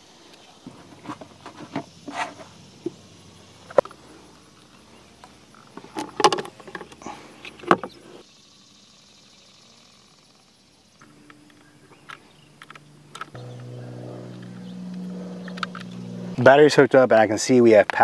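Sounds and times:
steady low hum: 0:00.0 - 0:17.0
connectors clicking onto terminals: 0:14.3 - 0:16.1.

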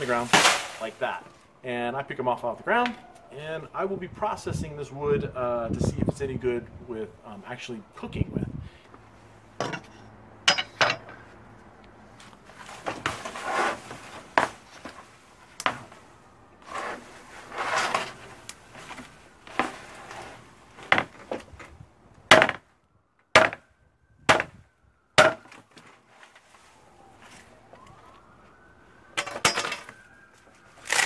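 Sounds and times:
machete rasping palm frond: 0:00.0 - 0:01.0, 0:12.6 - 0:14.7, 0:16.6 - 0:20.4
machete chopping blows: 0:00.1 - 0:00.9, 0:24.3 - 0:24.6.

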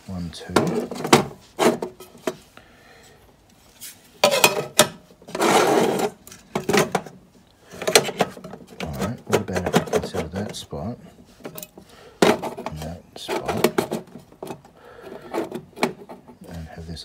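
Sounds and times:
scraping slide: 0:05.3 - 0:06.2.

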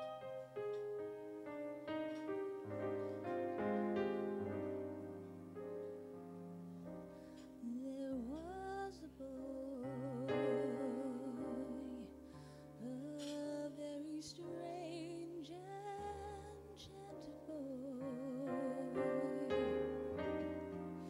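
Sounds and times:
keyboard playing slow chords: 0:00.0 - 0:08.2, 0:18.1 - 0:21.0
woman singing with vibrato: 0:07.6 - 0:12.2.

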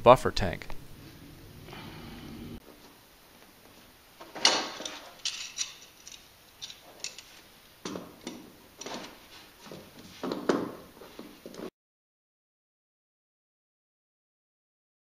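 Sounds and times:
hand tools clinking and scraping: 0:04.2 - 0:11.7.

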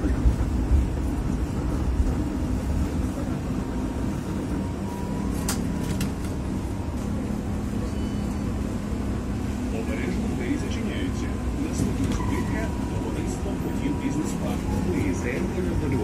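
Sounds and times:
tram running hum: 0:00.0 - 0:16.0
faint squeal: 0:07.7 - 0:08.8.

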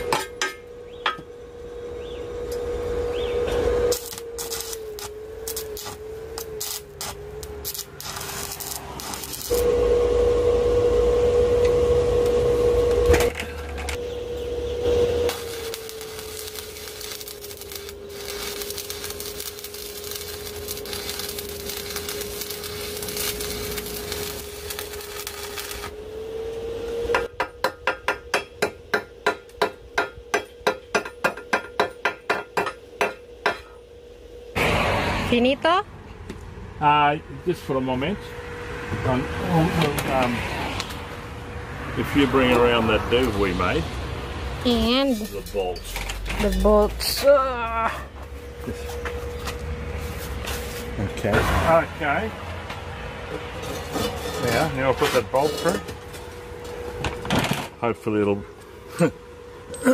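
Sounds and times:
hammer striking steel: 0:00.0 - 0:01.3, 0:27.1 - 0:33.8
steady hum: 0:00.0 - 0:36.0
welding arc crackling: 0:03.4 - 0:13.2, 0:14.0 - 0:30.1, 0:42.2 - 0:47.4, 0:48.2 - 0:52.1.

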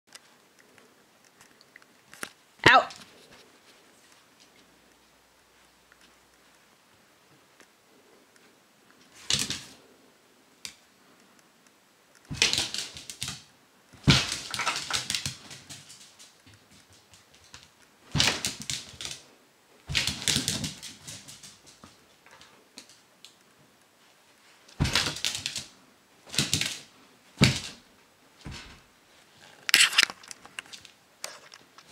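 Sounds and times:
dog claws clicking on vinyl floor: 0:09.2 - 0:09.9, 0:12.2 - 0:19.3, 0:19.9 - 0:23.4, 0:24.7 - 0:27.8.

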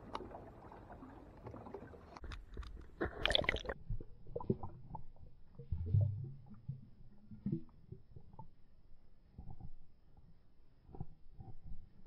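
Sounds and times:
soft underwater clicks: 0:00.0 - 0:03.8, 0:06.5 - 0:12.0
water splashing: 0:00.0 - 0:03.8
low underwater rumble: 0:00.0 - 0:12.0.

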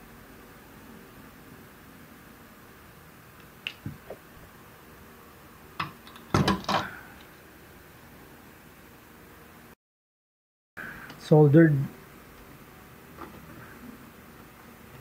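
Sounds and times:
steady faint hiss: 0:10.8 - 0:15.0.

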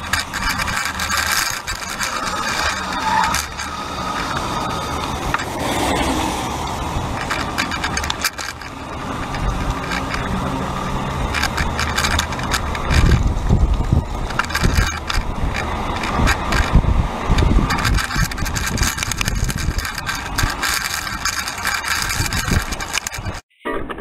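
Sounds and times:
camera rattling on bike rack: 0:00.0 - 0:24.0
car passing on wet road: 0:03.7 - 0:07.1.

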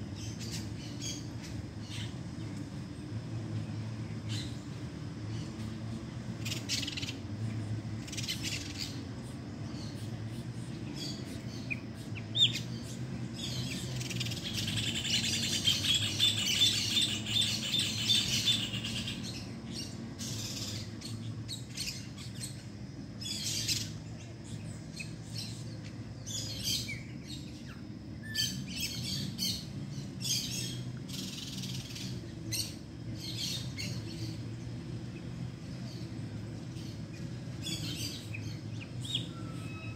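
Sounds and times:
low background hum: 0:00.0 - 0:39.9
songbirds chirping: 0:00.0 - 0:39.9
bird trilling: 0:37.6 - 0:39.9.

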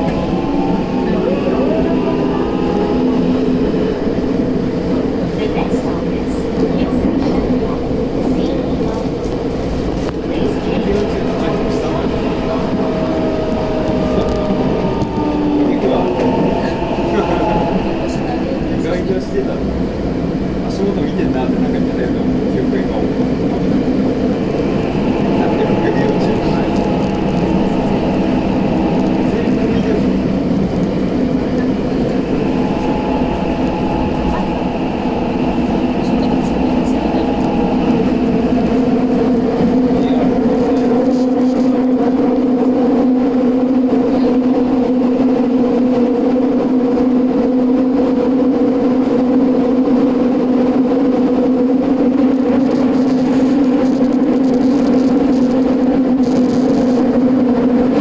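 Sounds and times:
train wheels rumbling on rail: 0:00.0 - 0:58.0
droning hum: 0:24.0 - 0:40.4.

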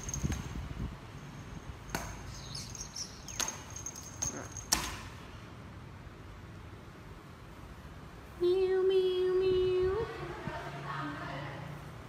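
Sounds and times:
sharp taps and clicks: 0:03.3 - 0:05.0.

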